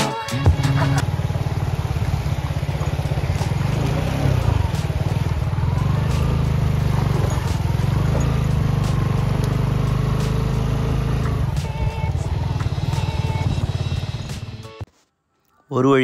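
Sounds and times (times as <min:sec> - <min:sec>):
motorcycle engine running: 0:00.4 - 0:14.8.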